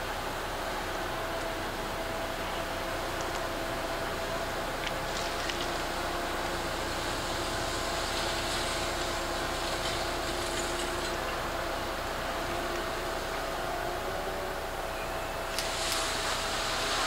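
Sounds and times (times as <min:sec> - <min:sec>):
diesel engine hum: 0:00.0 - 0:17.0
steady two-pitch whine: 0:11.2 - 0:16.6.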